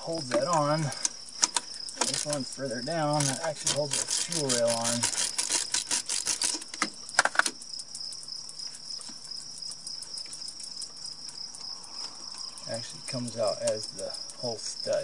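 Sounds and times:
fast metallic clicking: 0.0s - 8.2s
pulsing insect trill: 0.0s - 15.0s.

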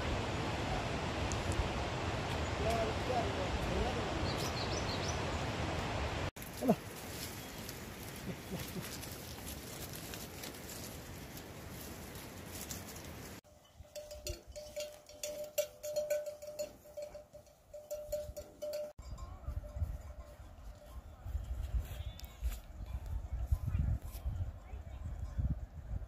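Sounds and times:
livestock bell clanking: 13.4s - 21.7s.

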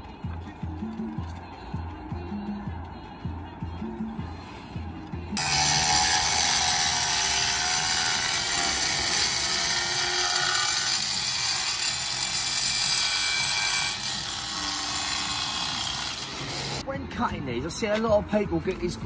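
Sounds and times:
angle grinder cutting tile: 5.4s - 16.8s.

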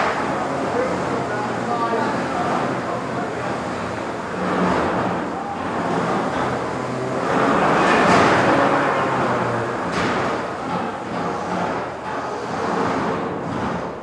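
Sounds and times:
crowd chatter: 0.0s - 12.6s.

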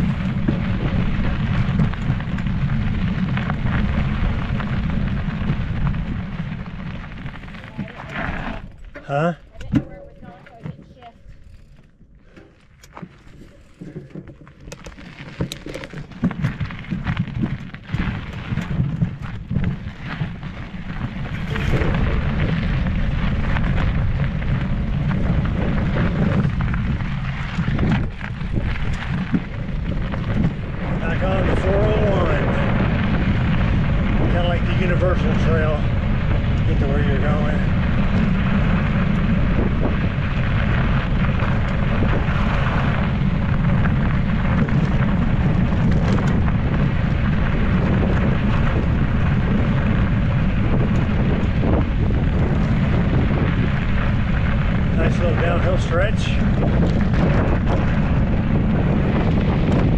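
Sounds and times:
wind buffeting microphone: 0.0s - 12.4s, 13.0s - 59.9s
bike knocking and rattling: 0.0s - 59.9s
tyres crunching on gravel: 0.0s - 59.9s.

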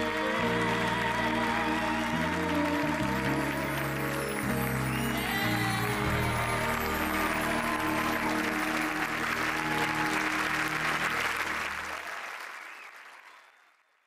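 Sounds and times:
music: 0.0s - 12.8s
studio audience applauding: 0.0s - 14.0s.

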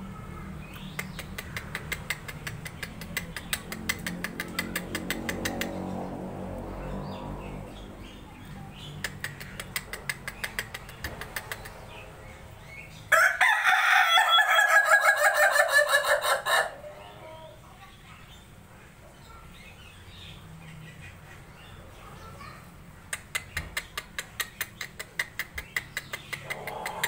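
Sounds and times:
rooster crowing: 13.1s - 16.9s.

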